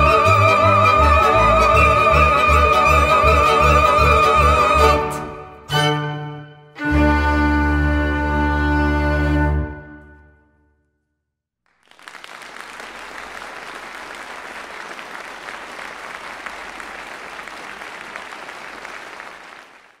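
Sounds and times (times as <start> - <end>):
audience applauding: 11.7 - 20.0.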